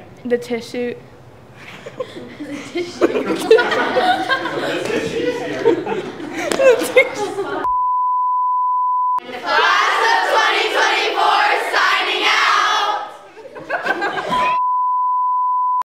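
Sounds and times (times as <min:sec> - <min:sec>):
steady test-tone beep: 0:07.7 - 0:09.2, 0:14.6 - 0:15.8.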